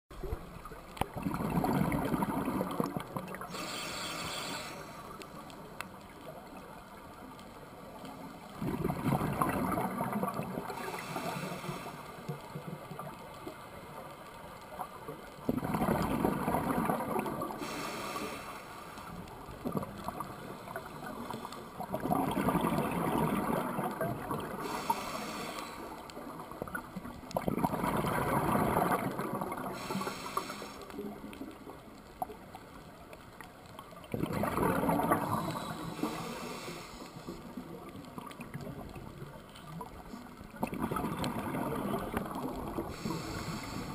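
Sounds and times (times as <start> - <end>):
exhaled bubbles gurgling: 0.1 - 14.1, 14.7 - 32.9, 33.6 - 43.9
regulator inhale hiss: 3.4 - 5.5, 10.7 - 12.4, 17.5 - 19.3, 24.5 - 26.2, 29.7 - 31.0, 35.2 - 37.5, 42.8 - 43.9.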